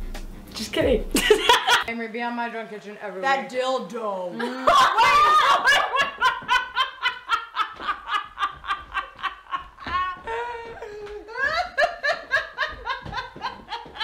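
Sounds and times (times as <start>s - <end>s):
women laughing: 1.2s - 1.9s, 4.4s - 14.0s.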